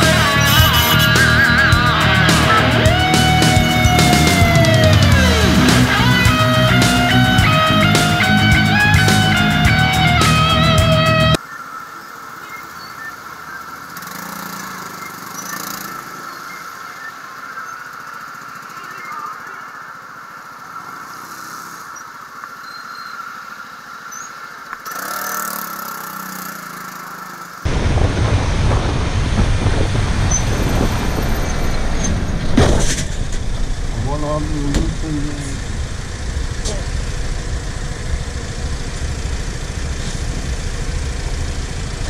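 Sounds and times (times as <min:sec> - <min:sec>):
loud engine drone: 0:00.0 - 0:11.4, 0:24.9 - 0:42.0
motorcycle engine at low speed: 0:00.0 - 0:11.4, 0:13.3 - 0:17.6, 0:24.8 - 0:42.0
surrounding traffic noise: 0:00.0 - 0:42.0
wind rushing over microphone: 0:27.7 - 0:42.0.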